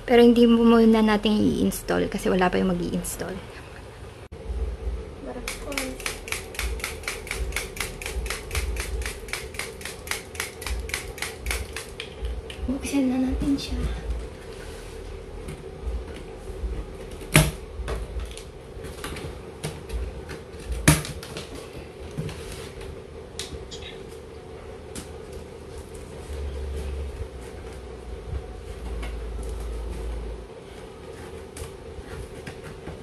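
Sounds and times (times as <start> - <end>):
steady hum: 0.0 - 33.0
sharp snaps: 5.4 - 12.6.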